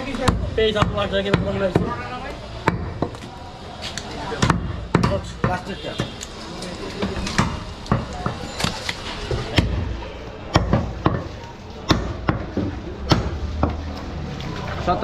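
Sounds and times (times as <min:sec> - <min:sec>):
cleaver chopping meat on wood: 0:04.4 - 0:06.2, 0:10.5 - 0:13.8.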